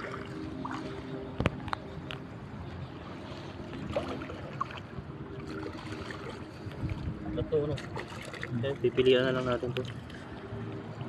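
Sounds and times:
seawater sloshing around rocks: 2.9s - 10.6s.

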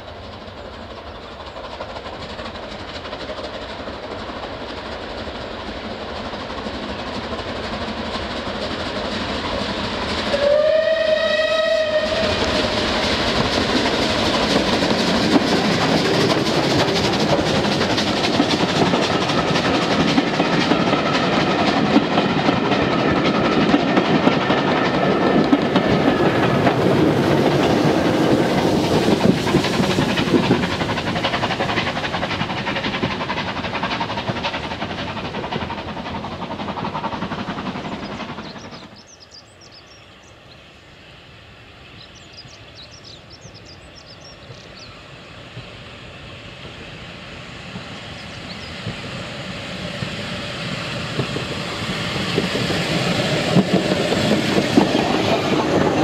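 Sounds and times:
steam locomotive approaching: 0.0s - 56.0s
steam whistle: 10.3s - 12.5s.

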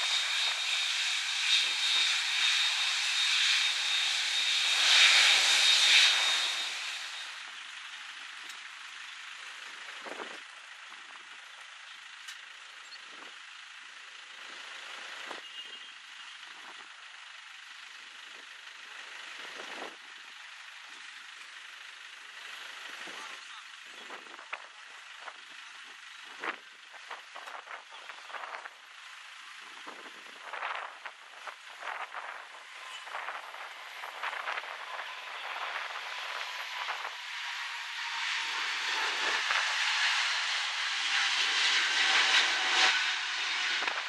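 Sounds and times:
jet engines whining: 0.0s - 11.4s, 21.8s - 44.0s.

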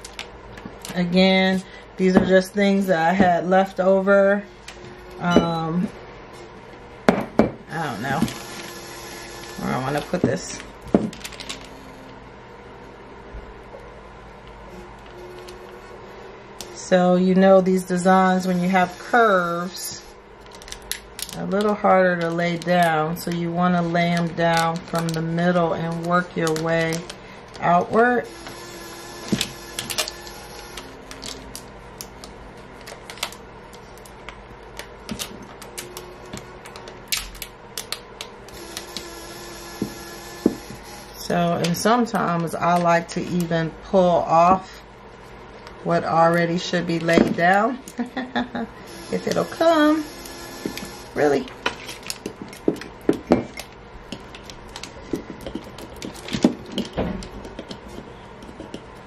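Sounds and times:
tape crinkling: 9.3s - 11.8s, 20.4s - 27.7s, 29.4s - 38.9s, 50.7s - 53.0s
clicks and crackles of vinyl tape: 29.4s - 38.9s.

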